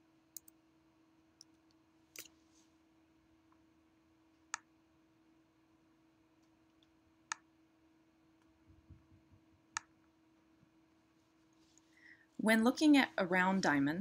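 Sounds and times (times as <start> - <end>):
faint steady hum: 0.0 - 14.0
computer mouse clicks: 0.4 - 0.6.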